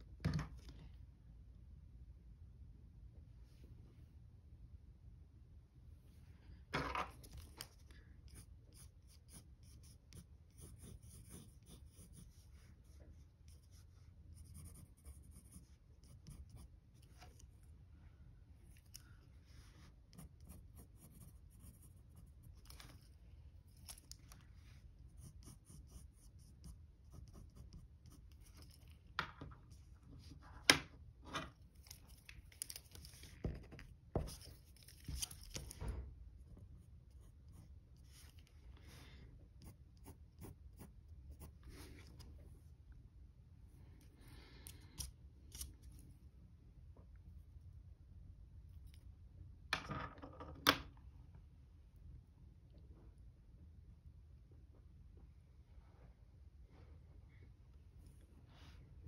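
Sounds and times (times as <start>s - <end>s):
pencil scratching on paper: 7.7s - 17.6s, 19.6s - 23.1s, 25.0s - 28.9s, 33.4s - 35.6s, 39.6s - 42.2s.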